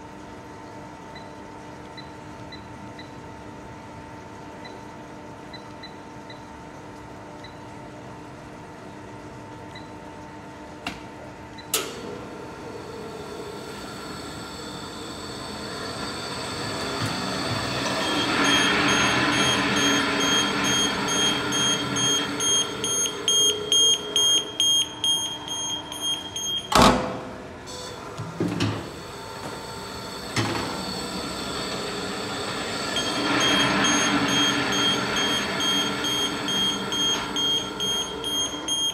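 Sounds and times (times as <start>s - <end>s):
ball mill agitator turning: 12.0s - 26.7s, 28.0s - 38.9s
rapid high electronic beeping: 18.0s - 26.7s, 32.9s - 38.9s.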